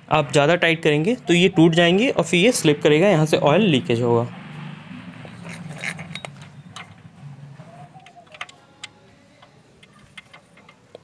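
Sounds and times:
spanner clicking on metal bolt: 5.4s - 7.0s, 8.0s - 11.0s.

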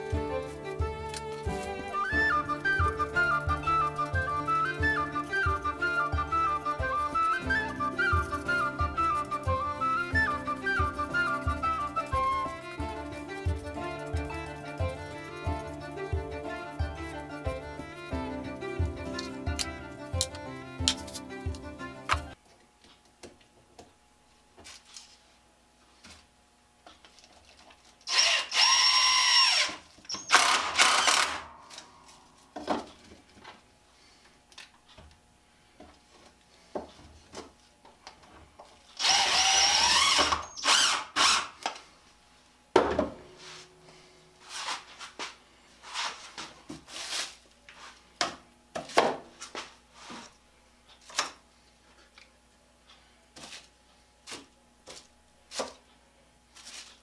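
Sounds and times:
cordless drill spinning: 28.0s - 31.4s, 39.0s - 41.6s.

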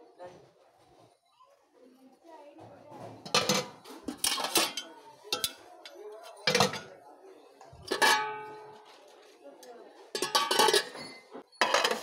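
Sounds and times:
metal pots and lids clanking: 3.1s - 7.0s, 7.7s - 9.1s, 10.1s - 12.0s.

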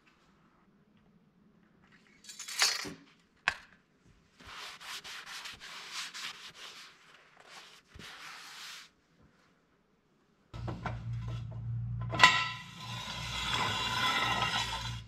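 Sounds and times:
hands rubbing and scraping: 4.4s - 8.9s.

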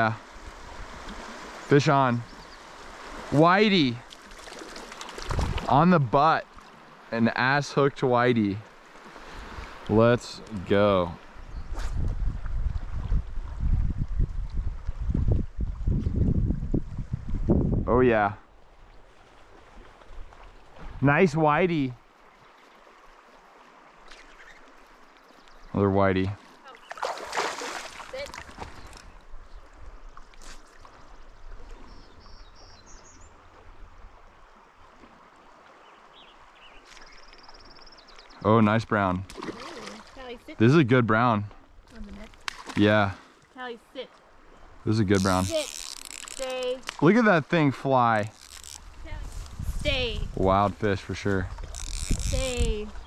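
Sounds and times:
stream flowing: 0.0s - 53.0s
water splash: 2.8s - 6.8s, 26.7s - 29.0s, 39.2s - 40.4s, 42.2s - 43.2s
wind buffeting microphone: 11.4s - 18.0s, 48.8s - 53.0s.

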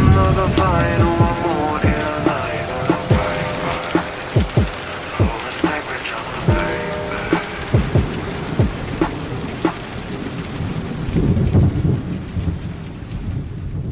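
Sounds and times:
low rumble of thunder: 0.0s - 5.7s, 6.4s - 13.9s
rain falling: 0.0s - 13.9s.

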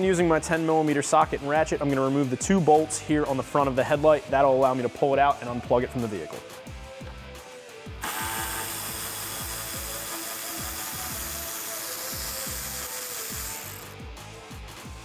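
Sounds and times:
cordless ratchet whirring: 8.0s - 14.1s.

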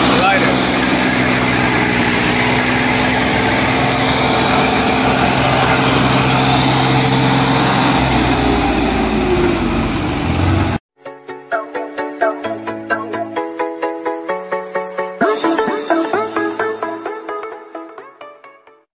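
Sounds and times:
tractor diesel engine running: 0.0s - 10.8s.

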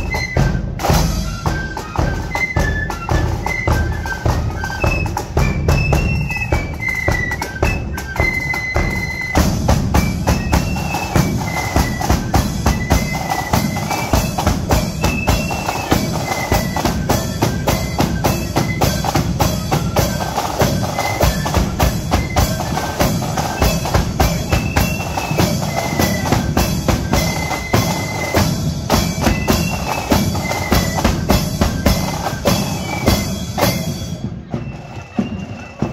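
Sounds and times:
cymbals: 0.0s - 35.9s
flutes playing shrill melody: 0.0s - 35.9s
rapid drumming: 0.0s - 35.9s.

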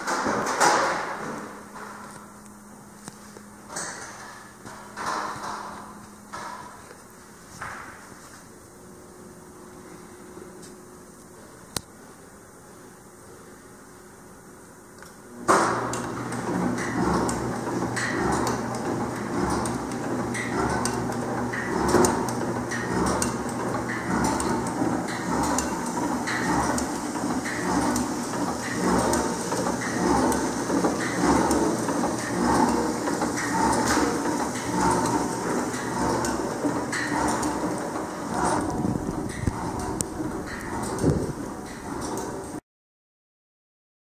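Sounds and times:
packaging machine humming: 15.3s - 42.6s
mechanical clack: 15.5s - 42.6s.

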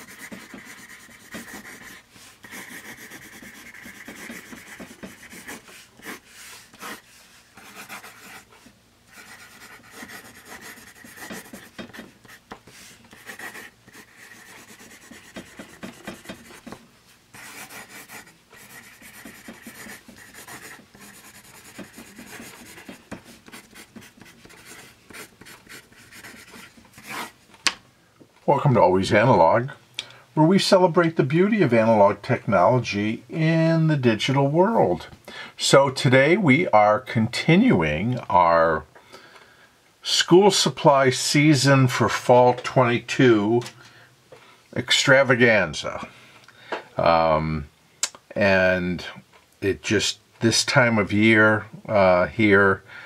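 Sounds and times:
pencil scratching on paper: 0.0s - 8.5s, 9.1s - 27.4s.

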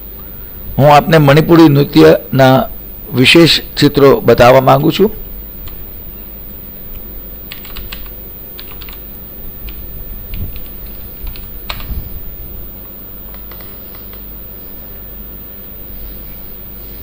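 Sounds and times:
steady low hum: 0.0s - 17.0s
keyboard keystrokes typing: 6.9s - 12.2s, 13.2s - 14.3s.

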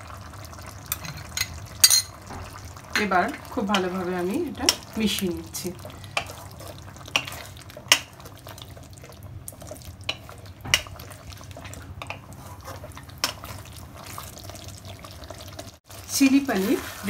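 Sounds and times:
spatula stirring gravy in wok: 3.6s - 17.0s.

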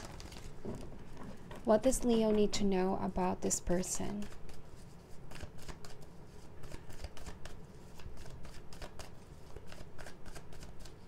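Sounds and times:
cards being shuffled: 4.2s - 11.0s.

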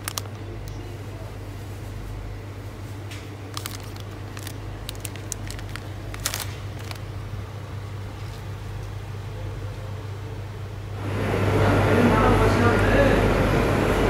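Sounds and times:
plastic packets crinkling: 0.0s - 1.7s, 3.0s - 9.0s
steady low hum: 0.0s - 14.0s.

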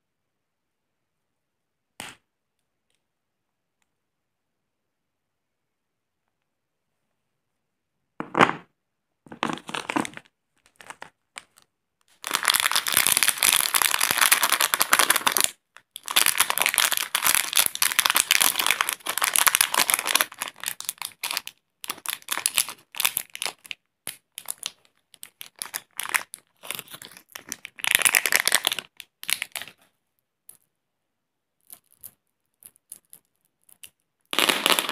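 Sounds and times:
candy wrapper rustling: 9.3s - 29.9s, 31.6s - 34.9s.

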